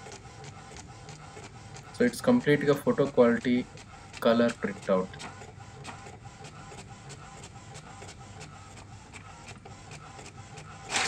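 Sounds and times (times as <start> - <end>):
inkjet printer printing: 0.0 - 11.0.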